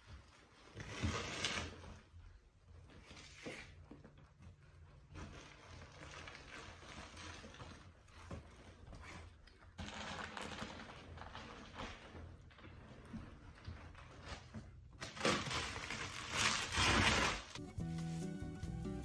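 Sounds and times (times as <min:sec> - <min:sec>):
plastic wrap rustling: 0:04.8 - 0:18.2.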